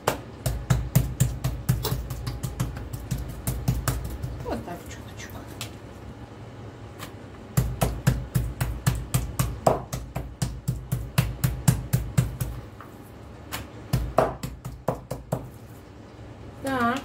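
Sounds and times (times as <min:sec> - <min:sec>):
meat mallet pounding meat: 0:00.0 - 0:04.5, 0:07.5 - 0:12.6, 0:13.5 - 0:15.5.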